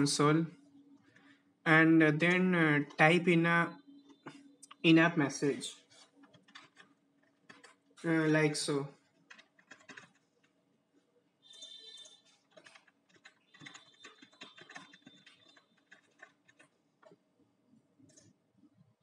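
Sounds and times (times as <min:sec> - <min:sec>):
keyboard typing clicks: 0:06.2 - 0:07.8, 0:09.3 - 0:10.6, 0:11.6 - 0:17.2.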